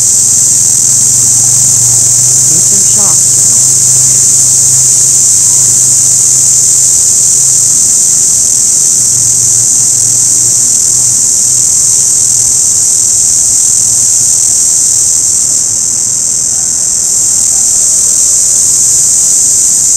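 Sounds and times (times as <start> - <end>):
cicada buzzing: 0.0 - 19.9.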